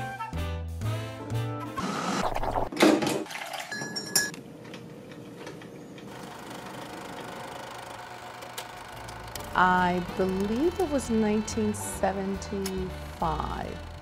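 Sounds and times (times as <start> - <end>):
spoon clinking on ceramic cup: 3.8 - 4.4.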